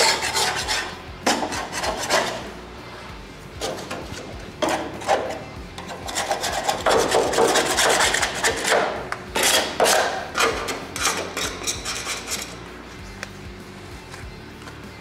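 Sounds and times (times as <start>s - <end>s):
paint scraper scraping metal: 0.0s - 2.6s, 3.5s - 12.7s.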